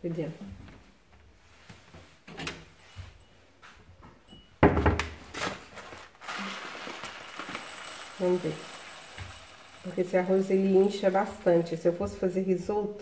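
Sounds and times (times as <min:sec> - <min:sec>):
kitchen knocks: 0:04.6 - 0:05.2
plastic bag rustling: 0:05.2 - 0:11.8.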